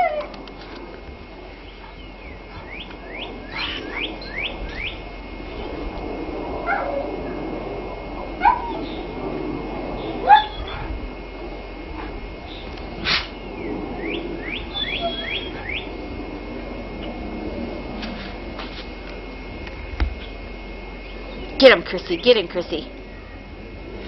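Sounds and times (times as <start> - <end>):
puppy yelps: 8.4 - 8.8, 10.2 - 10.9, 14.7 - 15.5
puppies squeaking: 14.7 - 15.5.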